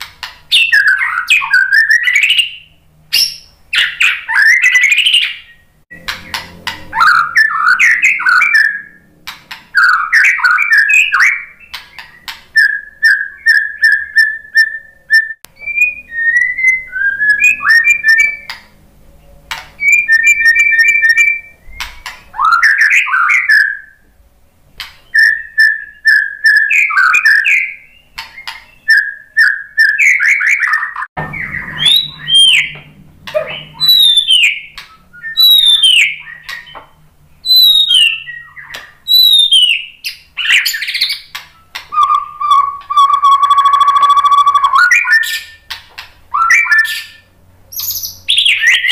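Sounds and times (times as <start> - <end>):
bird singing whistles and trills: 0.5 - 9.1, 9.7 - 18.7, 19.8 - 24.0, 25.0 - 48.9.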